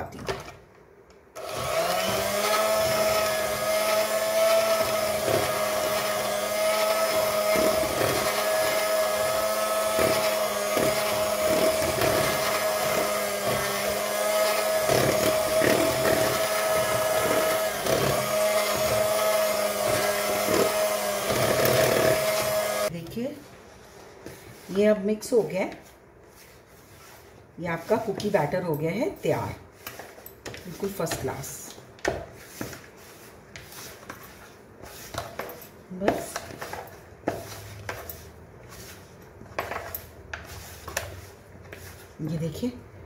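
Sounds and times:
electric hand mixer humming: 0:01.4 - 0:22.9.

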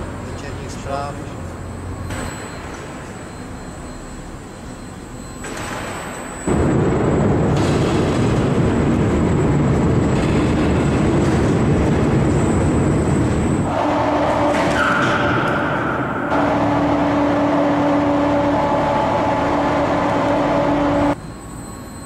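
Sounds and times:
steady tones: 0:00.0 - 0:22.0
overhead crane rumble: 0:06.4 - 0:21.2.

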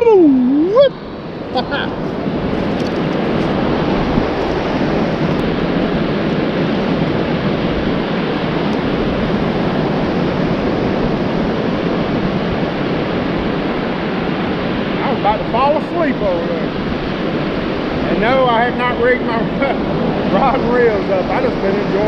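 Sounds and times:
wind buffeting microphone: 0:00.0 - 0:22.0
surf washing onto beach: 0:00.8 - 0:22.0.

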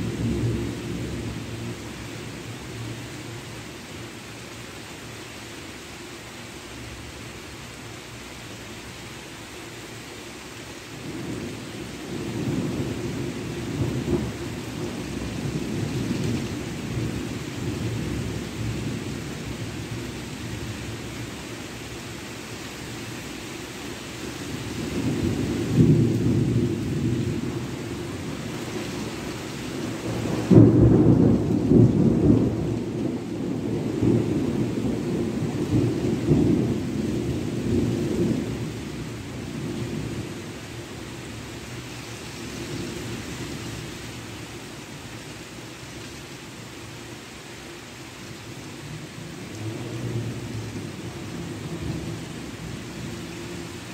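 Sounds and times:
rain hissing: 0:00.0 - 0:53.9
rolling thunder: 0:24.7 - 0:29.2, 0:29.8 - 0:40.4.

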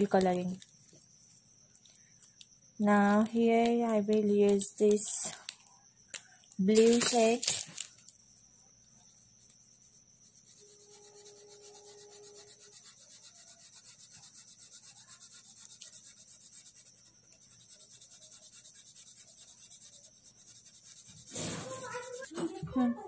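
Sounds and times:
felt-tip pen scratching paper: 0:09.3 - 0:23.0.

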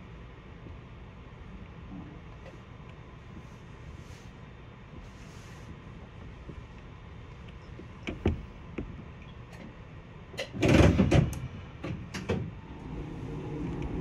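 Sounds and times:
clatter and knocks: 0:10.4 - 0:11.3
streetcar rumbling: 0:11.3 - 0:14.0.

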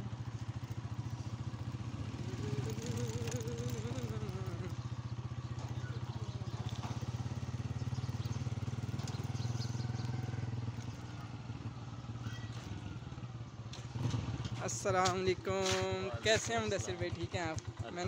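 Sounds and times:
small motorcycle engine running: 0:00.0 - 0:14.6, 0:15.3 - 0:18.0.

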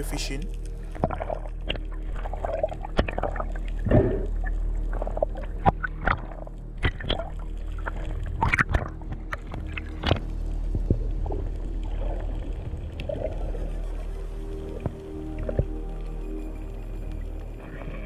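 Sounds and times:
steady low drone: 0:00.0 - 0:18.0
underwater clicks and crackles: 0:00.0 - 0:18.0
bubbles gurgling: 0:00.8 - 0:10.2.

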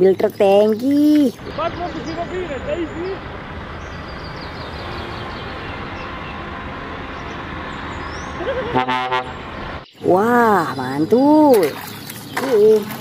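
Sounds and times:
truck engine rolling past: 0:01.0 - 0:11.4
truck horn blast: 0:08.6 - 0:09.6.

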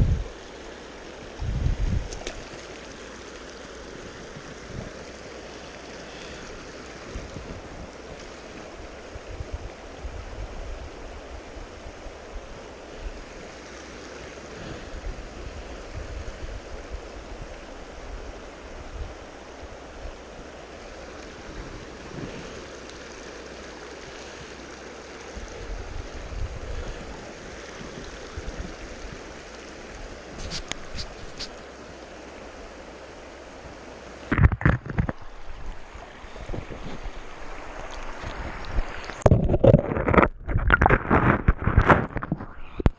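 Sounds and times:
wind buffeting microphone: 0:00.0 - 0:00.3, 0:01.4 - 0:02.2, 0:34.3 - 0:42.9
river rushing over cobbles: 0:00.0 - 0:42.8.

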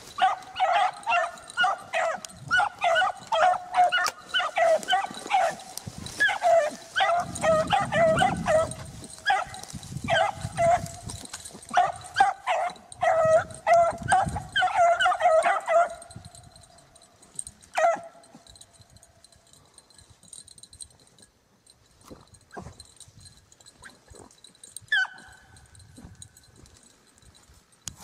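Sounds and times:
beagles baying: 0:00.0 - 0:18.8, 0:24.6 - 0:25.8.

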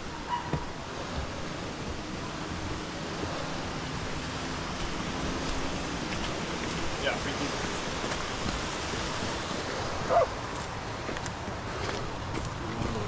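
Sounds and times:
steady rushing noise: 0:00.0 - 0:13.0.

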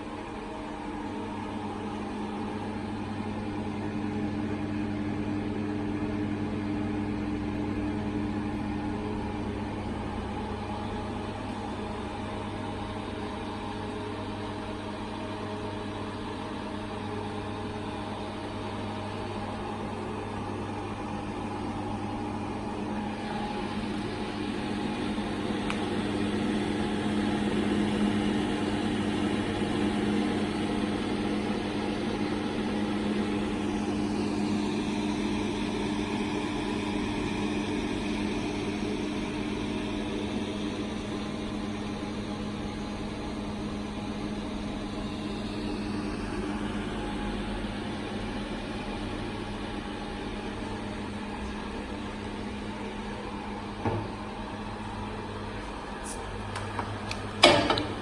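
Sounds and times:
electric motor hum: 0:16.3 - 0:42.3.

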